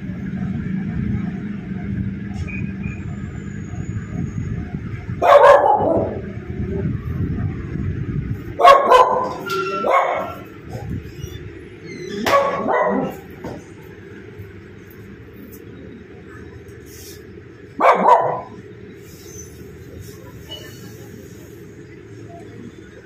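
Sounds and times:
dog barking: 5.2s - 6.2s, 8.6s - 10.4s, 12.2s - 13.2s, 17.8s - 18.6s.

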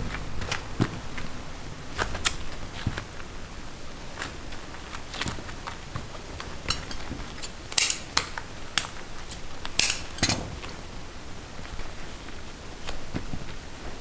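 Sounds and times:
metal tools clinking on candy: 6.7s - 8.1s, 8.8s - 10.4s.

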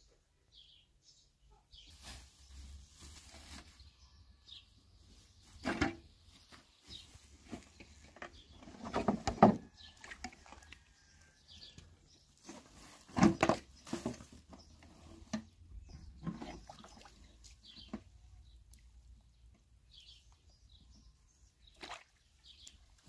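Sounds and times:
water sloshing in plastic basin: 7.4s - 11.7s, 12.4s - 18.9s, 21.6s - 23.0s.

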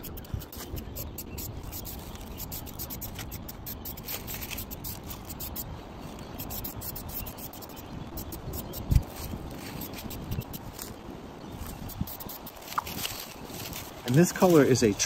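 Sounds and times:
spray paint can hissing: 0.0s - 5.7s, 6.4s - 9.0s.

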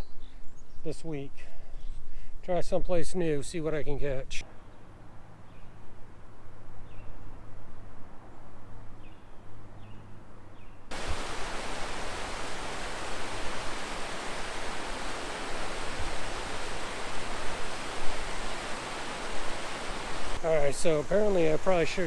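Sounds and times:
water rushing off a dam: 10.9s - 22.0s.

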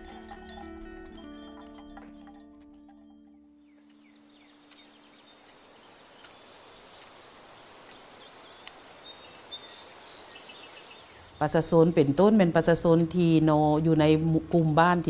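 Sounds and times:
music chord: 0.0s - 5.5s
insects droning: 3.7s - 14.8s
soft hiss: 3.9s - 13.4s.

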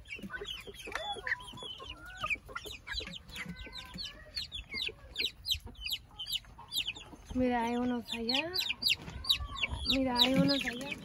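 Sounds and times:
chicks peeping: 0.0s - 11.0s
hens clucking: 0.0s - 11.0s.

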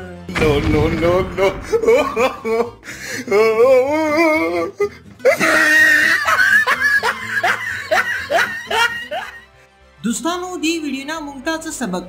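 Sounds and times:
man laughing: 1.3s - 9.5s.

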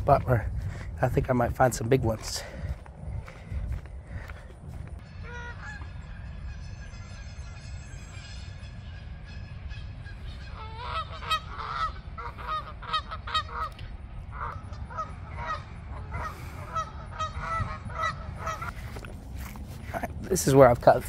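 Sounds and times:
geese honking: 5.0s - 21.0s.

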